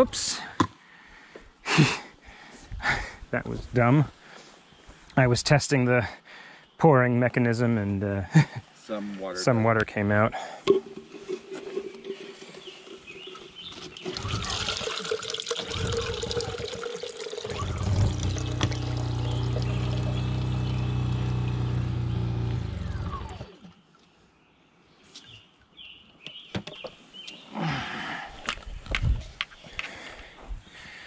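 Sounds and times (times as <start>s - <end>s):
water pouring into plastic jar: 10.7s - 20.8s.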